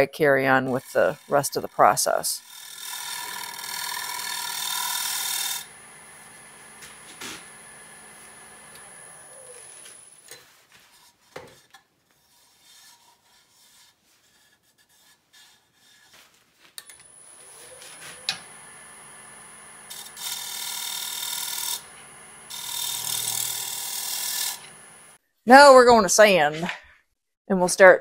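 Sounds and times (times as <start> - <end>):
wood lathe whining: 0.6 - 10.2, 16.9 - 25.2.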